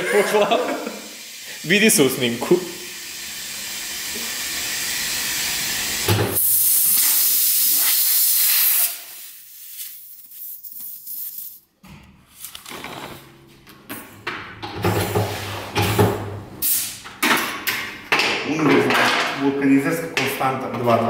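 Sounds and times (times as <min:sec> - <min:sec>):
compressed air hissing: 0:00.8 - 0:11.4, 0:16.6 - 0:17.0.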